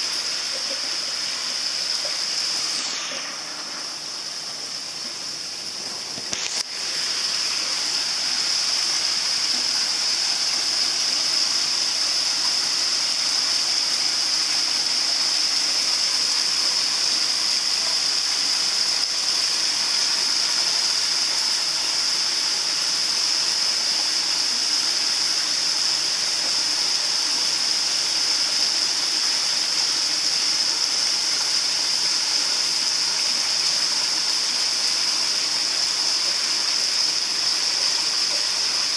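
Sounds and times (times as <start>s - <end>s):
water splashing into pond: 0.0s - 20.4s
click: 6.2s - 6.7s.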